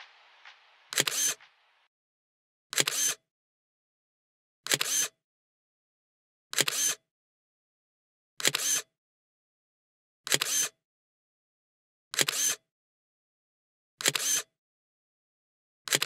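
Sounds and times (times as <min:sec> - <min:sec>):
camera shutter clicks: 0:00.9 - 0:01.5, 0:02.8 - 0:03.2, 0:04.7 - 0:05.1, 0:06.6 - 0:07.0, 0:08.4 - 0:08.8, 0:10.3 - 0:10.7, 0:12.2 - 0:12.6, 0:14.0 - 0:14.5.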